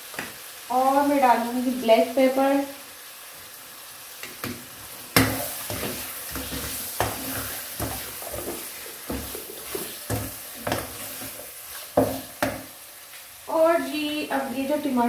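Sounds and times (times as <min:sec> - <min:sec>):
meat and onions sizzling in a wok: 0:00.0 - 0:15.0
spatula stirring and scraping: 0:04.2 - 0:13.1.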